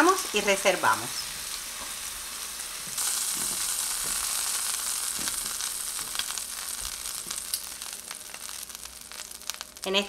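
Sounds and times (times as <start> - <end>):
meat sizzling in frying pan: 0.0 - 10.0.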